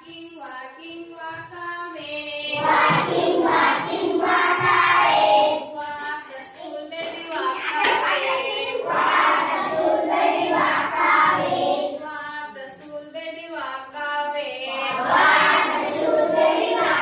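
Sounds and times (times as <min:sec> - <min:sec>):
woman singing: 0:00.0 - 0:02.8, 0:05.6 - 0:08.9, 0:10.5 - 0:15.6
children singing: 0:02.4 - 0:12.6, 0:14.4 - 0:17.0.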